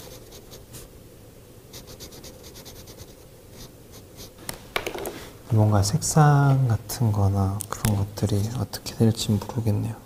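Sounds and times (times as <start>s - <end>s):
pen scratching on paper: 1.7s - 4.3s.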